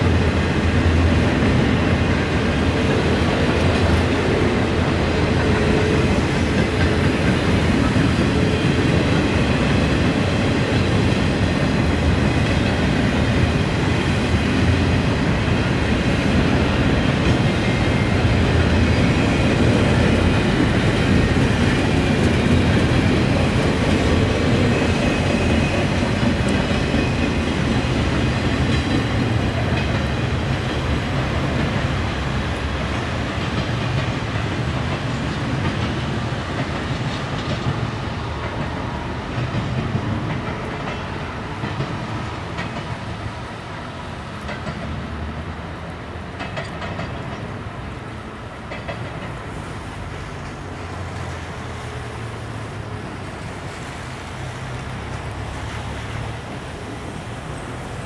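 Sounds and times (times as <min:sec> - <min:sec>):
train wheels rumbling on rails: 0:00.0 - 0:58.0.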